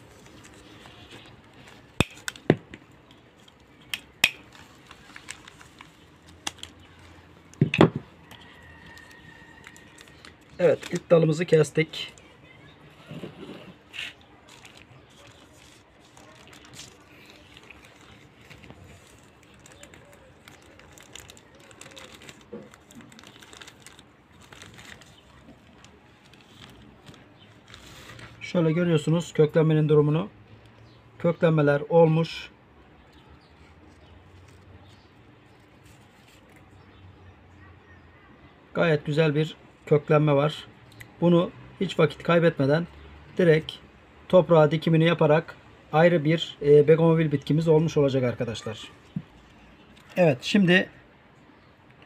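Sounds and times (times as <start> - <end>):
plastic bag crinkling: 3.4 - 7.6, 8.2 - 12.3, 13.7 - 28.4.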